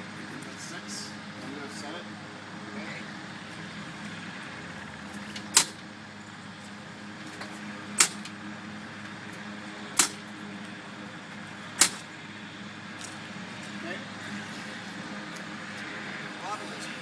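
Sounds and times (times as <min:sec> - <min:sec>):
sharp clicks of propeller turning: 0:09.0 - 0:10.8.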